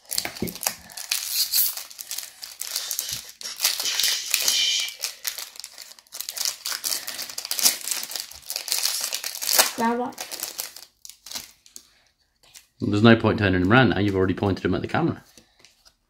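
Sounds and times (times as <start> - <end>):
foil wrapper crinkling and tearing: 0.0 - 11.9.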